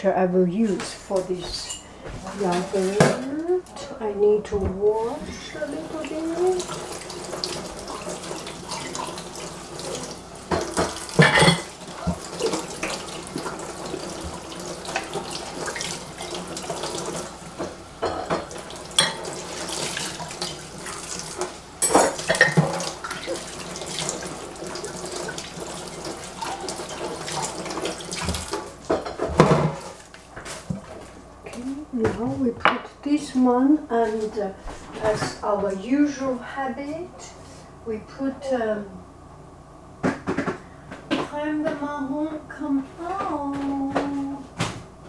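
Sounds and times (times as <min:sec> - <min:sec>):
knocks and clatters in sink: 0:09.8 - 0:31.1, 0:40.0 - 0:41.9.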